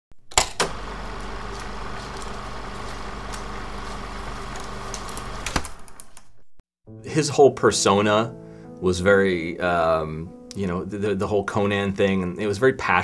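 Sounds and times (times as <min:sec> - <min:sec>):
film projector whirring: 0:00.3 - 0:06.2.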